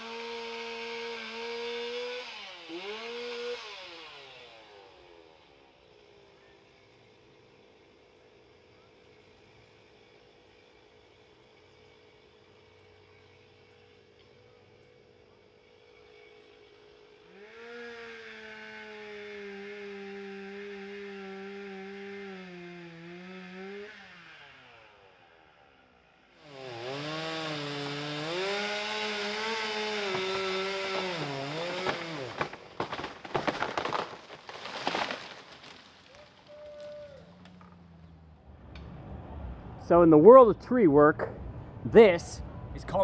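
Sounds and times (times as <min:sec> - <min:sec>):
chainsaw running: 0:00.0 - 0:38.4
tree cracking and crashing: 0:26.9 - 0:37.8.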